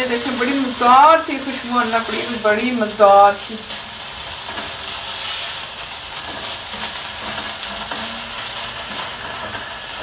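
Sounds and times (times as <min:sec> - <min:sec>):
chicken sizzling in hot oil: 0:00.0 - 0:10.0
spoon scraping a pan: 0:03.7 - 0:10.0.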